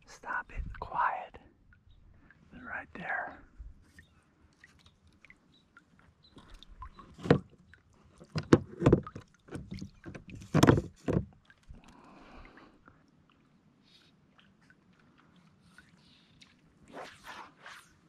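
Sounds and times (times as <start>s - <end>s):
kayak hull knocking: 8.2s - 11.4s.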